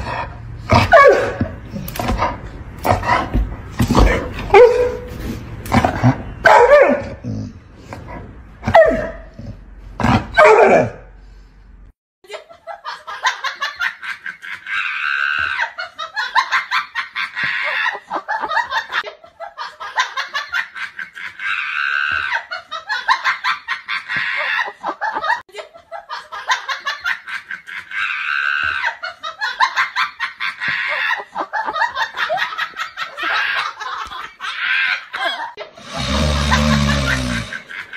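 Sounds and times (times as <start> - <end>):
dog barking: 0.8 - 1.4, 4.5 - 5.1, 6.4 - 7.2, 8.7 - 9.3, 10.4 - 11.0
recorded laughter: 12.3 - 37.9.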